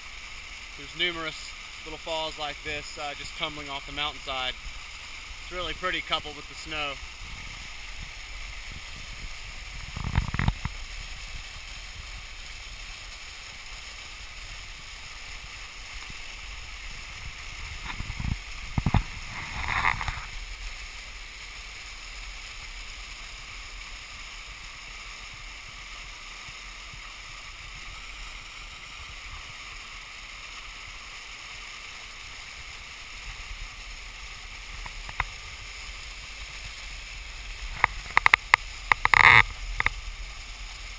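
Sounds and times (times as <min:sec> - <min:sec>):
waterfall rushing hiss: 0:00.0 - 0:40.9.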